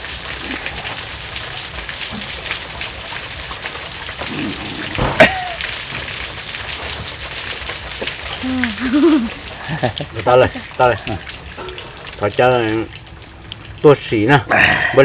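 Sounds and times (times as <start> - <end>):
rain pattering: 0.0 - 15.0
sharp knock: 5.0 - 5.4.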